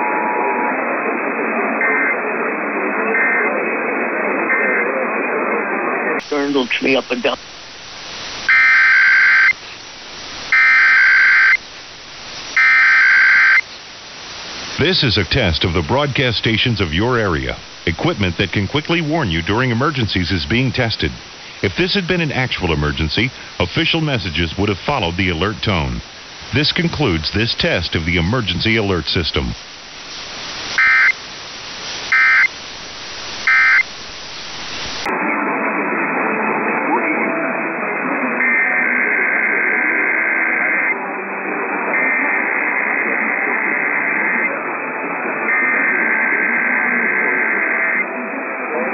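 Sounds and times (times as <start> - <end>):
radio static hiss: 5.0 - 35.2, 38.4 - 48.9
short buzzing data tones: 30.8 - 31.2, 33.4 - 33.9.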